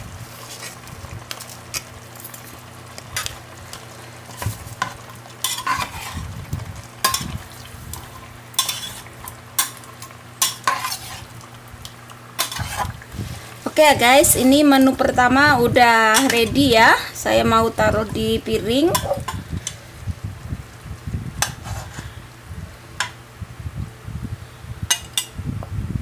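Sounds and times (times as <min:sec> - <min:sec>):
cooking sizzle: 0:00.0 - 0:25.5
utensil clinking and scraping pot: 0:02.2 - 0:06.3, 0:07.0 - 0:11.5, 0:12.4 - 0:13.8, 0:16.0 - 0:16.8, 0:17.8 - 0:19.8, 0:21.4 - 0:22.2, 0:24.9 - 0:25.4.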